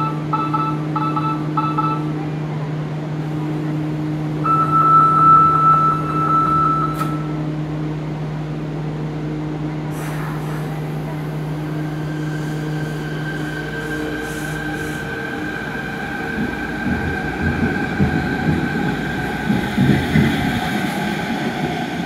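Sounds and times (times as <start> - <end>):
electronic warning tone: 0.0 - 2.0, 4.4 - 7.3
train hum: 0.0 - 22.0
hiss: 9.9 - 10.9.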